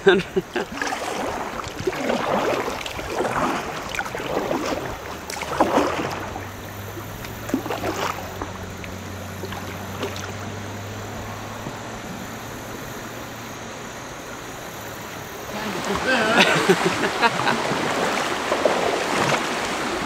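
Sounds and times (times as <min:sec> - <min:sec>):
kayak paddle splashing: 0:00.0 - 0:20.0
river current washing: 0:00.0 - 0:20.0
truck engine humming: 0:06.3 - 0:17.8.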